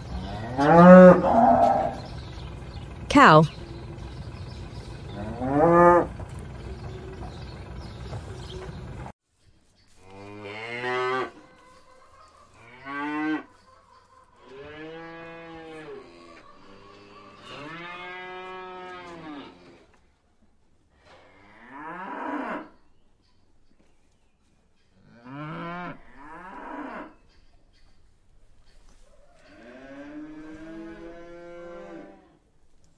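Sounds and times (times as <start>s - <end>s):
cows mooing: 0.1s - 2.1s, 5.1s - 6.2s, 25.1s - 27.1s, 29.6s - 32.3s.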